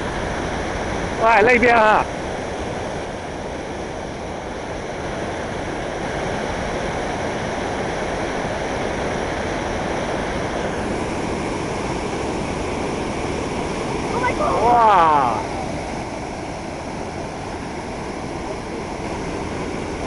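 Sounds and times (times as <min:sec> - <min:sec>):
river water rushing over rocks: 0:10.3 - 0:20.0.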